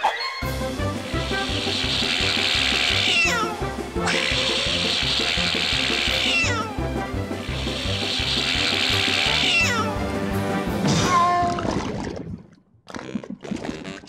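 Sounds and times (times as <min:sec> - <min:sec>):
cartoon water jet hissing: 0:00.5 - 0:09.9.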